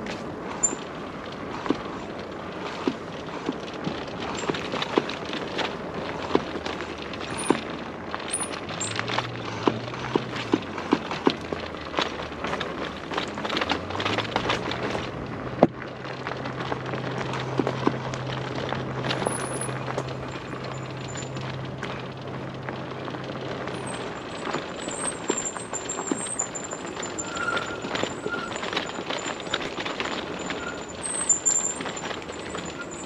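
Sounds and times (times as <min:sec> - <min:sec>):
bike tyres crunching over dirt: 0:00.0 - 0:33.0.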